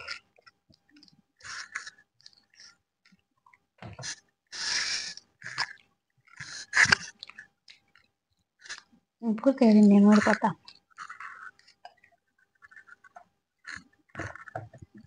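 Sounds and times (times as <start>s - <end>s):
people chewing: 0.0s - 15.0s
sharp breaths and gasps: 1.0s - 2.8s, 3.8s - 7.5s.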